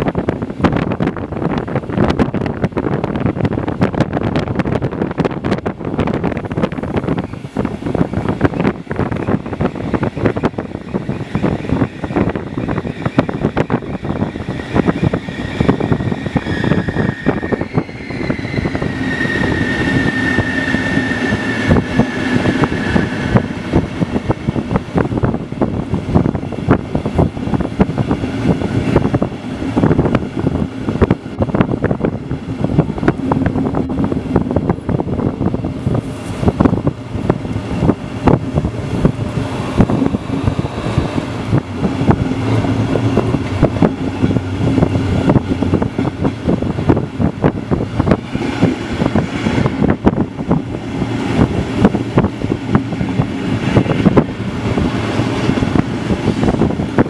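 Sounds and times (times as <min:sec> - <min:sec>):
rushing air: 0:00.0 - 0:57.0.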